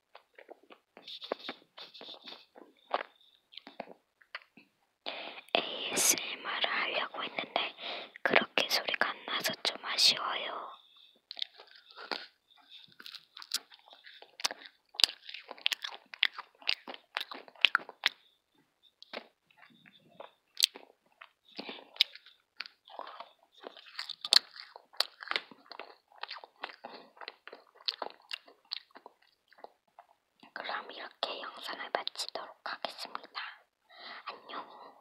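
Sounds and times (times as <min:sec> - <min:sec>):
candy crunching and chewing: 0:00.0 - 0:04.7, 0:08.5 - 0:33.6.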